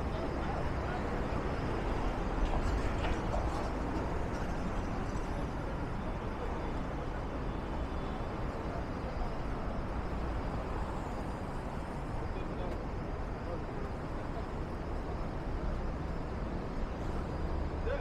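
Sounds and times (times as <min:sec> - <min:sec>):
city street traffic: 0:00.0 - 0:18.0.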